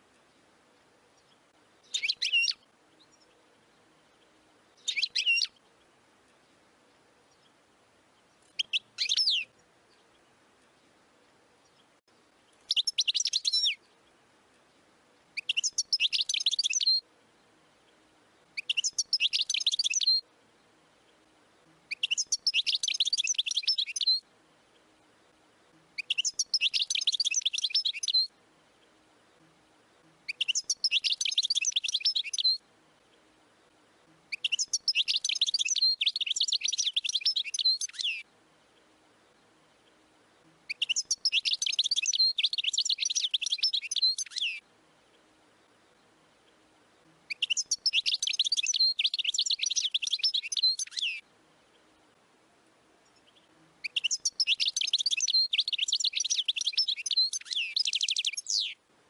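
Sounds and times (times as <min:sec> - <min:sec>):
finch singing twittering song: 0:01.1 - 0:06.6, 0:08.3 - 0:10.9, 0:11.6 - 0:14.8, 0:15.4 - 0:17.0, 0:17.9 - 0:24.2, 0:26.0 - 0:28.9, 0:30.2 - 0:32.6, 0:34.3 - 0:38.2, 0:40.7 - 0:44.6, 0:47.3 - 0:51.2, 0:53.0 - 0:58.8.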